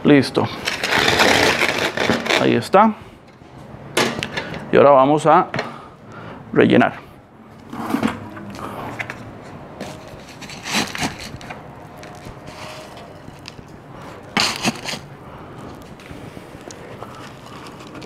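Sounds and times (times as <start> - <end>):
plastic bucket and gritty soil scraping: 7.6 - 15.1, 17.0 - 18.0.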